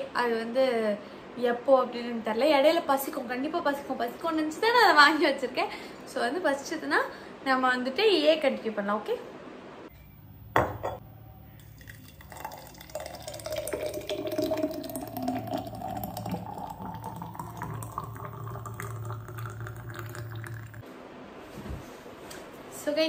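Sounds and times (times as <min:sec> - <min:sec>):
smoothie pouring into a glass: 0:11.4 - 0:20.8.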